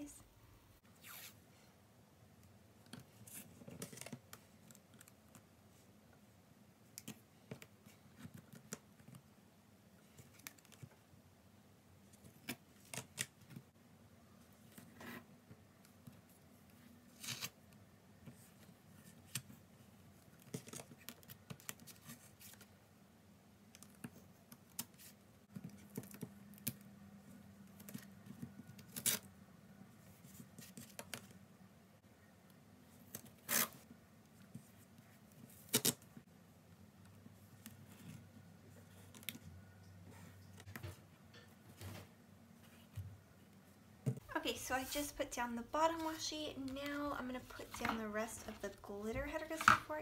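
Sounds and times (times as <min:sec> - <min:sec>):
tape rustling and tearing on paper: 0:17.1 - 0:17.6, 0:28.8 - 0:29.3, 0:33.1 - 0:33.8, 0:35.4 - 0:36.1.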